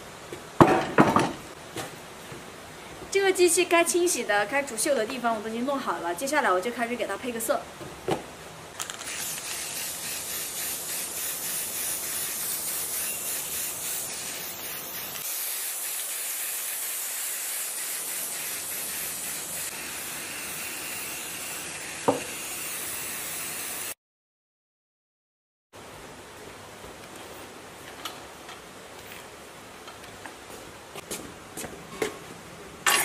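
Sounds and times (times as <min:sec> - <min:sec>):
spray paint can hissing: 0:08.9 - 0:24.0.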